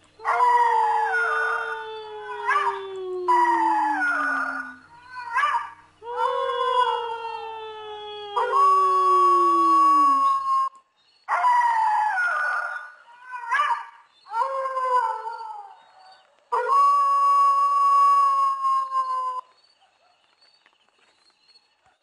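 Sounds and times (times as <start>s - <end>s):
dogs howling: 0.2s - 10.5s.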